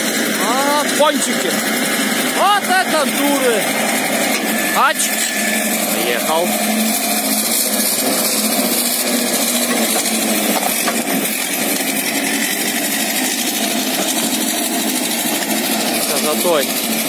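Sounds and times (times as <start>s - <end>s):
diesel engine running under load: 0.0s - 17.0s.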